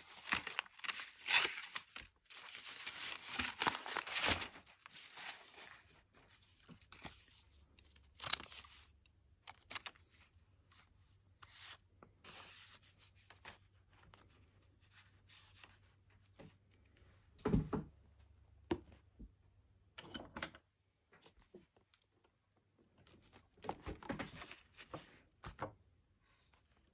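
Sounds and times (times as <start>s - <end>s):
paper rustling: 0.0s - 7.5s.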